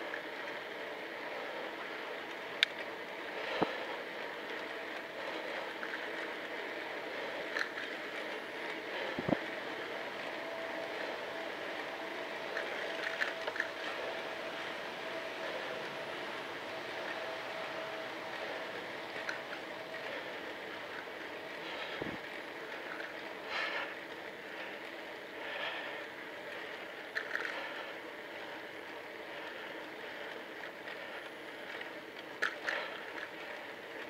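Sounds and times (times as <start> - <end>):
bicycle tyre noise: 0.0 - 34.0
faint steady whine: 0.0 - 34.0
bike clicks and knocks over bumps: 2.5 - 10.3, 19.2 - 34.0
wind rush: 9.1 - 10.7, 22.0 - 22.3.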